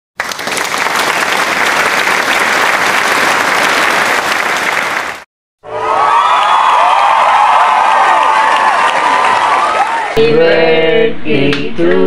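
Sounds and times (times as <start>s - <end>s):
group of people clapping: 0.2s - 5.3s, 6.1s - 10.2s.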